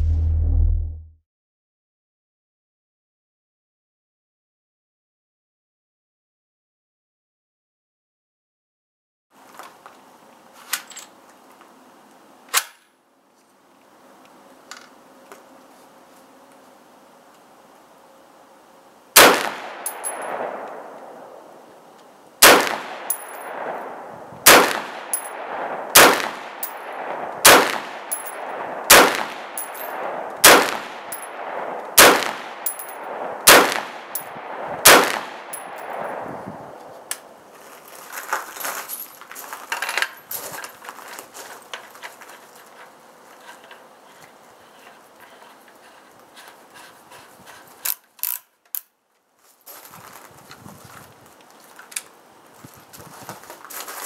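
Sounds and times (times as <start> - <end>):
rifle handling clicks and rattles: 10.6 - 12.9, 19.8 - 21.1, 29.5 - 30.0, 32.6 - 33.0, 38.0 - 46.9, 47.5 - 49.3, 51.4 - 52.2
gunshot echo: 19.2 - 21.3, 22.4 - 36.7
suppressed rifle shots: 19.2 - 21.3, 22.4 - 36.2.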